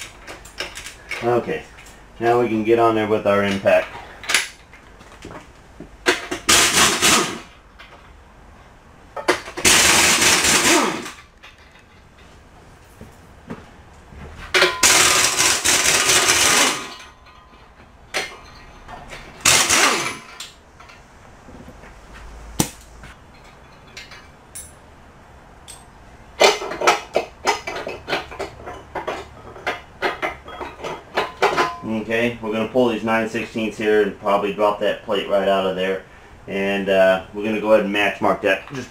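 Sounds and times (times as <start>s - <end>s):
impact wrench hammering: 6.0s - 7.6s, 9.2s - 11.3s, 14.5s - 17.4s, 19.4s - 20.6s, 22.6s - 22.9s
light metallic clinks and knocks: 11.3s - 13.4s, 16.9s - 19.4s, 22.6s - 25.0s, 25.6s - 26.0s, 26.6s - 32.0s.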